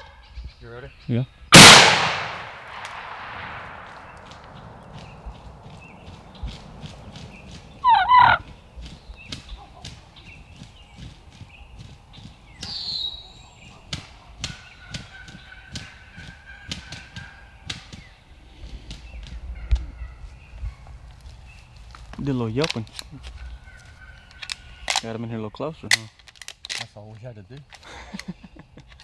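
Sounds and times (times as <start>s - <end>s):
turkey call: 7.8s - 8.5s
clicks and rustles: 25.8s - 29.0s.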